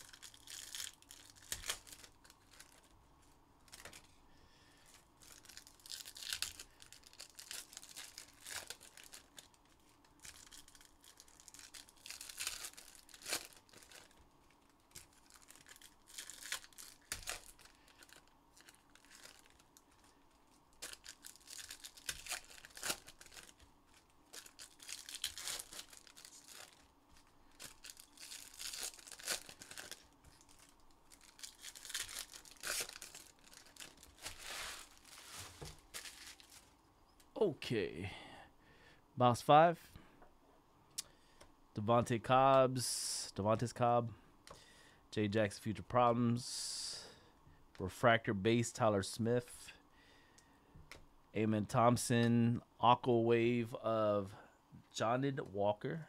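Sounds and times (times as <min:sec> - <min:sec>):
wrappers tearing and crinkling: 0:00.0 - 0:03.0, 0:03.6 - 0:04.2, 0:04.8 - 0:36.8.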